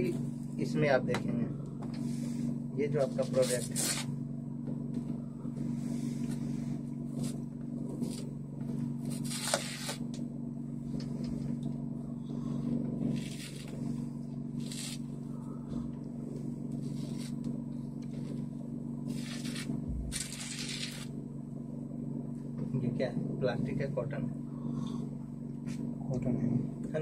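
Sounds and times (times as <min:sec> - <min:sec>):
steady low hum: 0:00.0 - 0:27.0
papery rustling and tearing: 0:03.2 - 0:04.1, 0:09.1 - 0:10.0, 0:13.1 - 0:13.7, 0:14.6 - 0:15.1, 0:16.8 - 0:17.4, 0:19.1 - 0:21.1.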